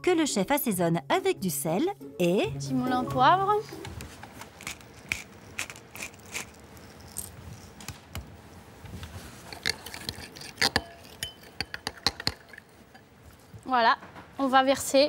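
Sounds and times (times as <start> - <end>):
pepper mill grinding: 4.4 - 7.8, 9.5 - 12.8
metal spoon stirring cream: 4.6 - 7.7, 9.5 - 13.1
spoon clinking against glass: 9.9 - 12.8.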